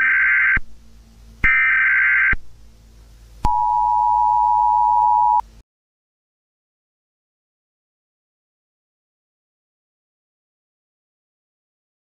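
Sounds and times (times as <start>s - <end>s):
two-tone attention signal: 3.5s - 5.4s.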